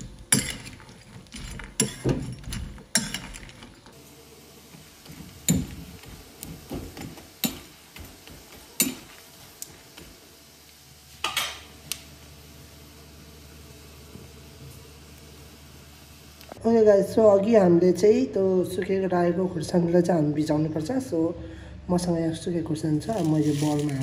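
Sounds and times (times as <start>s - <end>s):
faint frying sizzle: 3.9s - 16.6s.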